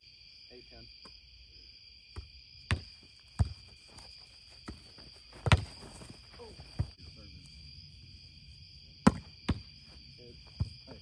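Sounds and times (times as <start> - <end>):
night insects droning: 0.0 - 11.0.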